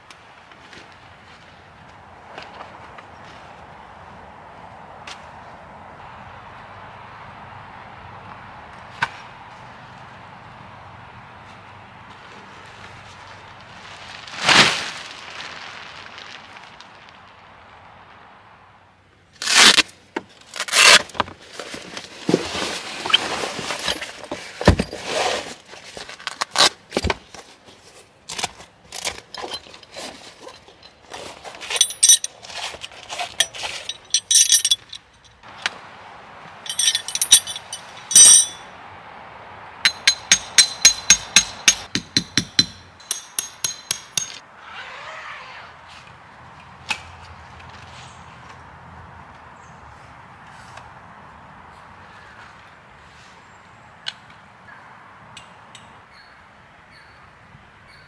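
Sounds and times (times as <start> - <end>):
canvas rustling: 12.4 - 17.3, 20.5 - 27.2, 36.7 - 38.6
velcro straps ripping open: 19.4 - 19.9, 20.5 - 21.1
metal tent stakes clinking: 23.1 - 25.2, 28.3 - 35.7, 36.6 - 38.7, 39.8 - 44.4
sharp metallic clicks: 39.8 - 44.4.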